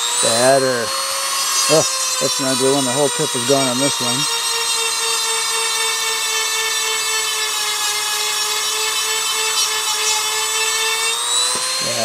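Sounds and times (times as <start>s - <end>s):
rotary tool grinding metal: 0.0s - 12.0s.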